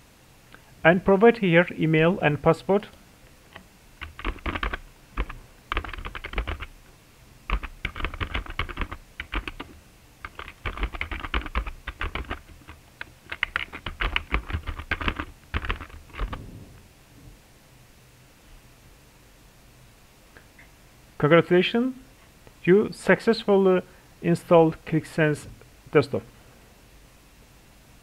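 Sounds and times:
typing on computer keyboard: 4.0 - 6.7, 7.5 - 16.4.

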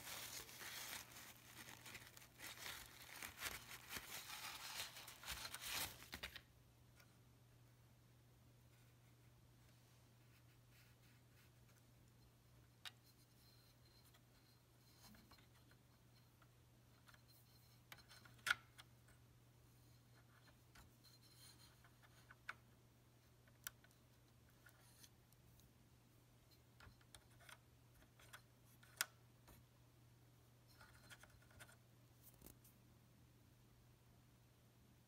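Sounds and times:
low steady hum: 0.0 - 35.0
light clicks and scratches: 12.8 - 19.2, 19.8 - 25.7, 26.5 - 29.7, 30.6 - 32.8.

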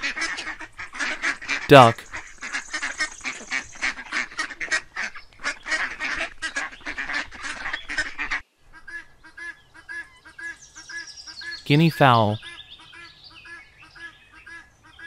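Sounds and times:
ducks quacking: 3.9 - 9.1.

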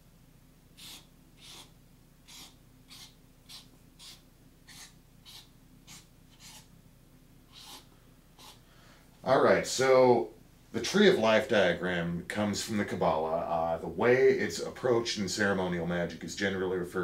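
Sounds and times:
marker scratching on paper: 0.8 - 6.7, 7.5 - 8.6.

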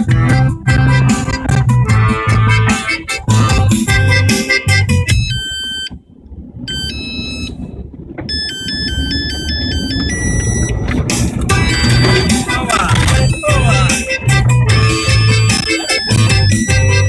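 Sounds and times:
band background music: 0.0 - 5.3, 10.7 - 17.0
electronic beeping melody: 0.2 - 6.0, 6.7 - 17.0
car driving on gravel: 5.7 - 15.4.

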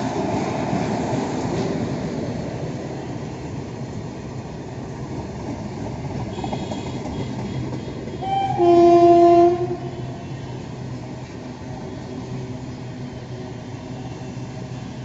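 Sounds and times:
freight train rumbling past: 0.0 - 15.0
train horn blast: 6.3 - 10.8.

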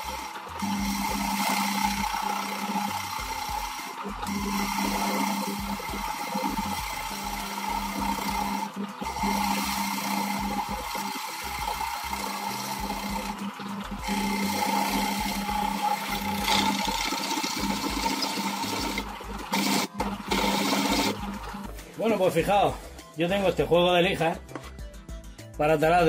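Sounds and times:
drill bit boring into plywood: 0.0 - 21.8
drill press motor hum: 0.0 - 21.9.

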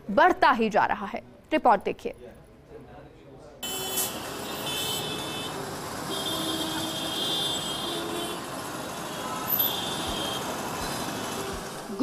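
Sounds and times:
street traffic: 3.4 - 12.0
vehicle horns: 3.6 - 11.8.

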